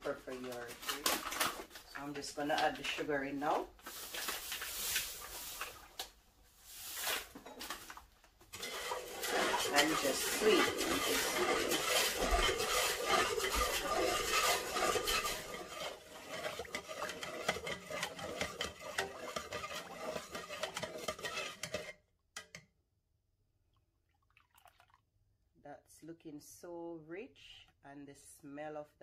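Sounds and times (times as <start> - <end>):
spoon stirring in metal pot: 6.8 - 22.7.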